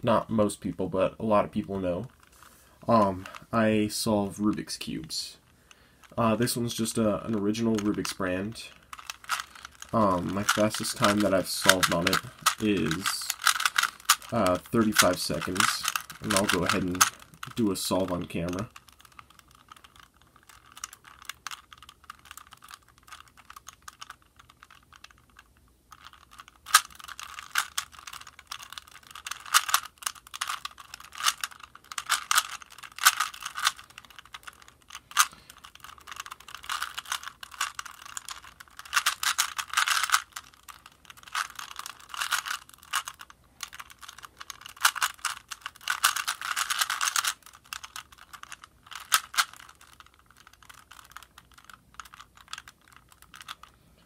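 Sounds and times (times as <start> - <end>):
puzzle cube layers clicking: 2.8 - 3.6, 6.0 - 53.8.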